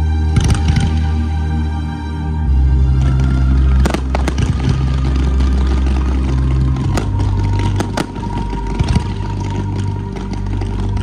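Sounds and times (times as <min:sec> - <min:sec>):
deep bass drone music: 0:00.0 - 0:11.0
firework bangs: 0:03.0 - 0:11.0.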